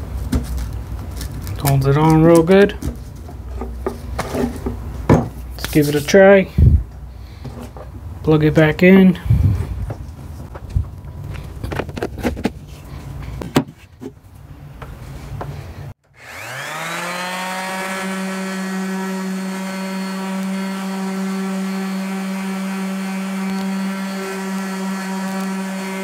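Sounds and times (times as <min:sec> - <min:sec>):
orbital sander whining and humming: 0:16.1 - 0:26.0.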